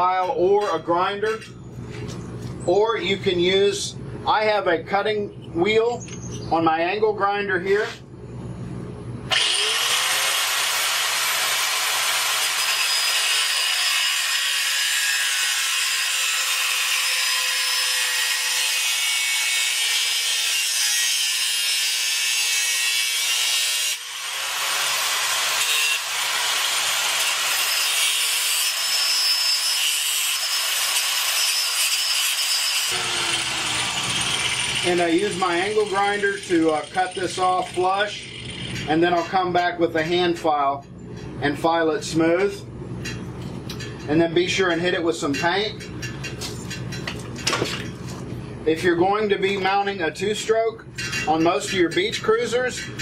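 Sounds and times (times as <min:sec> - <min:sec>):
angle grinder cutting steel: 0:09.3 - 0:39.0.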